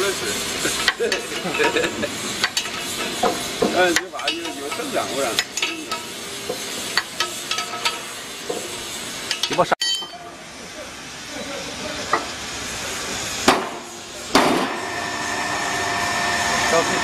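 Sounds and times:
steady hiss: 0:00.0 - 0:14.8
spanner clicking on bolts: 0:05.4 - 0:08.6.

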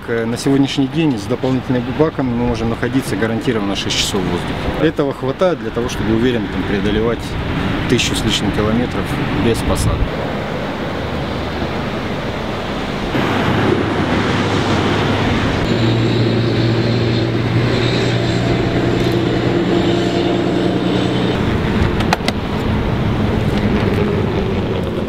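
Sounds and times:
broad rushing noise: 0:00.0 - 0:25.0
low hum with overtones: 0:10.7 - 0:25.0
thin high whine: 0:11.2 - 0:24.6.

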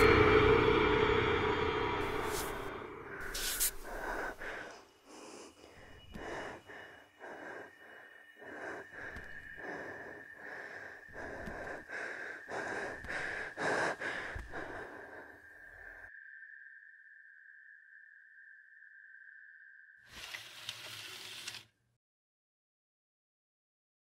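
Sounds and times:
high-pitched tone: 0:00.0 - 0:04.1
girl breathing heavily: 0:03.2 - 0:16.0.

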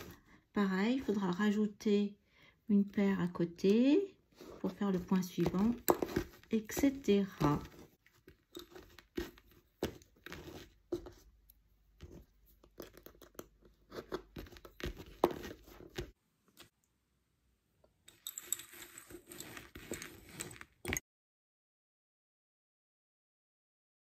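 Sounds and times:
handling rustle: 0:04.3 - 0:11.4, 0:18.1 - 0:21.0.

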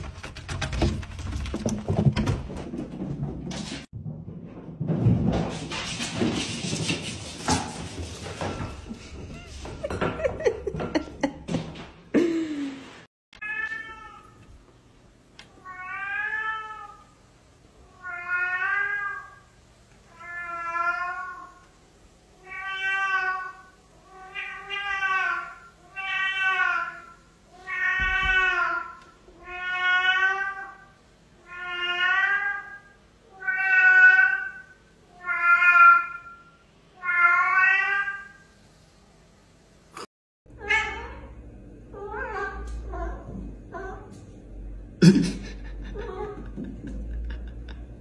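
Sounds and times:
knocks and clatter: 0:00.0 - 0:12.0
cat meowing: 0:13.4 - 0:14.4, 0:22.4 - 0:30.8, 0:31.4 - 0:36.4.

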